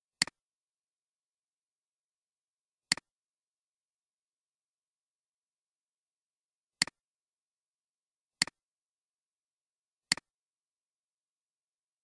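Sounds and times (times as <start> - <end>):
computer mouse clicks: 2.9 - 3.1, 10.1 - 10.3.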